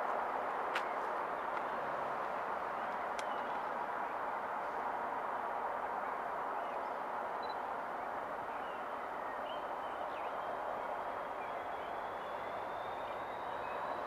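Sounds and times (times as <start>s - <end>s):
bird chirps: 8.5s - 14.0s.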